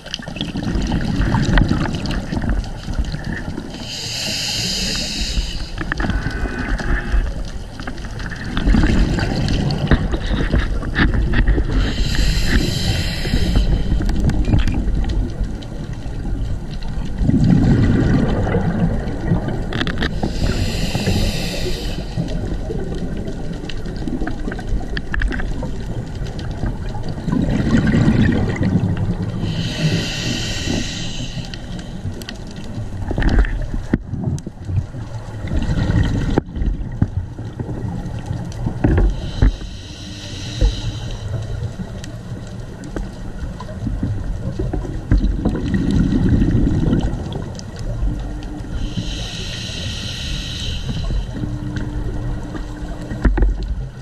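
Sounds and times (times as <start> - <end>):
exhaled air bubbling: 0.0 - 54.0
regulator inhale hissing: 3.7 - 7.4, 11.6 - 14.4, 20.0 - 22.7, 29.4 - 32.2, 39.1 - 41.9, 48.7 - 51.8.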